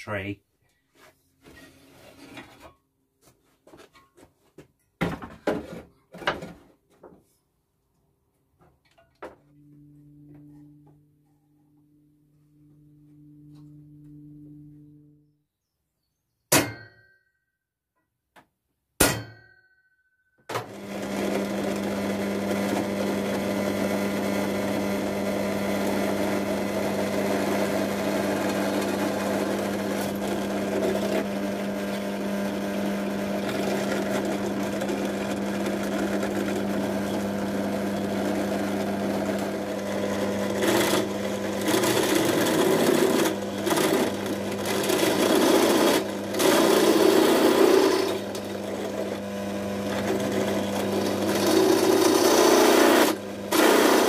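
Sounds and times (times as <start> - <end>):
drill press motor humming: 9.2 - 15.1, 20.5 - 54.0
drill bit cutting metal pipe: 20.9 - 49.2, 49.9 - 54.0.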